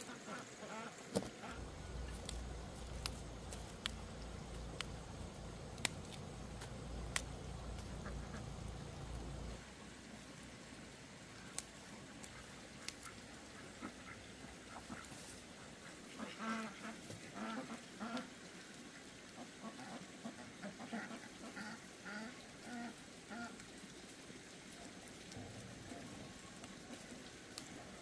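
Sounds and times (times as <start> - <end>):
ducks quacking: 0.0 - 9.6, 12.8 - 15.2, 15.8 - 18.3, 19.6 - 23.6
faint outdoor background: 0.0 - 28.0.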